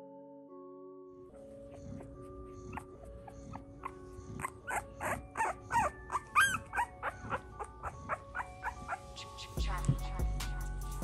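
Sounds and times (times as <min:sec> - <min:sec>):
puppy whimpering: 0:01.4 - 0:09.6.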